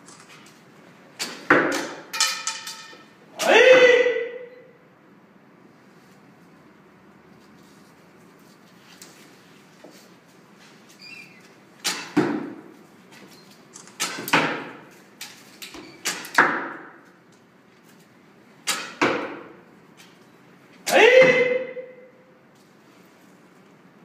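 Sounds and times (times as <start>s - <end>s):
bow shooting arrows: 1.2s - 3.1s, 11.8s - 12.7s, 13.9s - 14.9s, 15.7s - 17.0s, 18.6s - 19.6s
hall echo: 2.9s - 4.8s, 20.8s - 22.4s.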